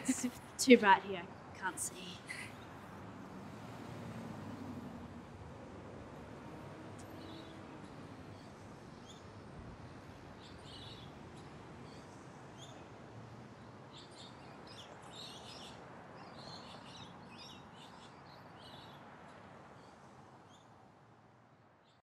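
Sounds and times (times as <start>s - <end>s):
small birds chirping: 7.0s - 12.9s, 13.6s - 19.0s.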